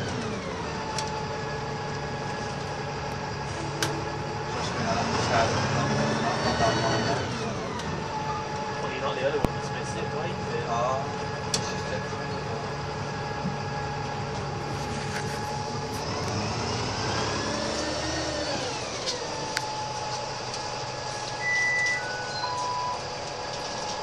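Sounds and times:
bus running with whine: 0.0s - 24.0s
short electronic beeps: 21.4s - 23.1s.

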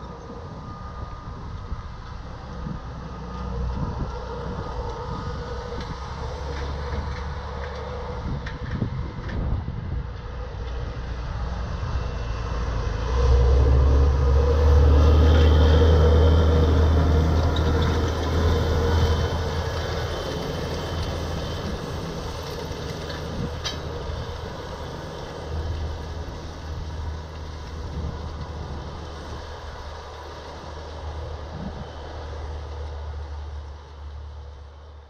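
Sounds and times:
tractor diesel engine drone: 0.0s - 35.0s.

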